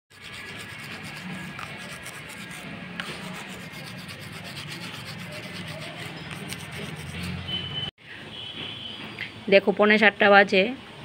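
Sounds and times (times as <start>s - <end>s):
toothbrush scrubbing teeth: 0.1s - 7.4s.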